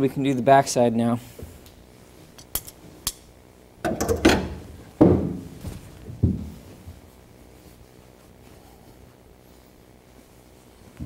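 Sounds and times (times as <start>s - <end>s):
carpet padding rustling and dragging: 4.5s - 11.0s.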